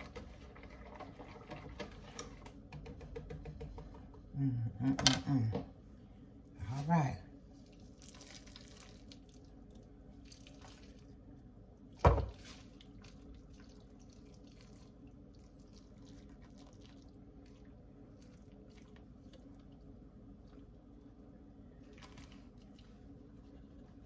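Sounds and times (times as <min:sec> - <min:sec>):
liquid trickling and splashing: 0:12.4 - 0:19.8.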